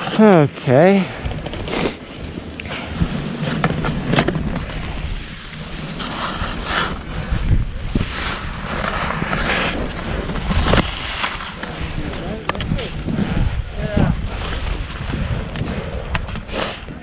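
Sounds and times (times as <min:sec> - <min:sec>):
wind buffeting microphone: 0:00.9 - 0:17.0
skis hissing through snow: 0:04.7 - 0:12.1, 0:16.4 - 0:16.9.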